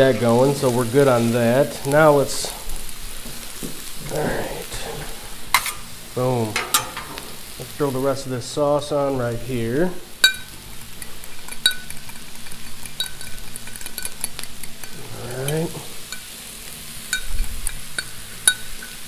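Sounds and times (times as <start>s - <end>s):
vegetables sizzling on griddle: 0.0s - 19.0s
metal spoon clinking glass bowl: 10.2s - 10.5s, 11.4s - 16.3s, 17.1s - 19.0s.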